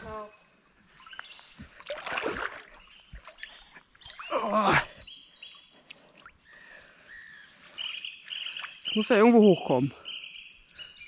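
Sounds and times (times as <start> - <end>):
water splashing and sloshing: 0.8 - 6.9.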